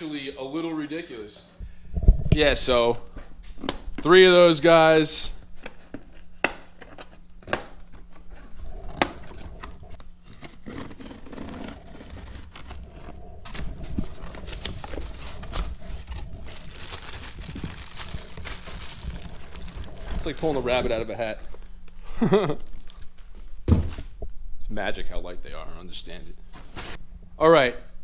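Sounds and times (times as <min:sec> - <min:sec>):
cardboard and plastic rustling: 0:05.4 - 0:24.2.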